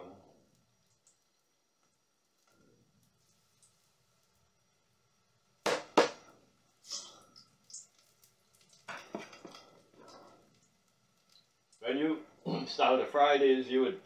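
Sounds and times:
spoon knocking on kitchenware: 5.7s - 6.2s.

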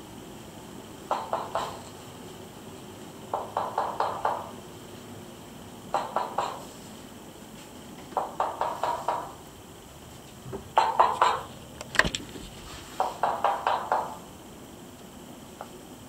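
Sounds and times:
rapid sharp knocking: 1.1s - 1.8s, 3.3s - 4.5s, 5.9s - 6.6s, 8.2s - 9.4s, 10.8s - 11.5s, 13.0s - 14.2s.

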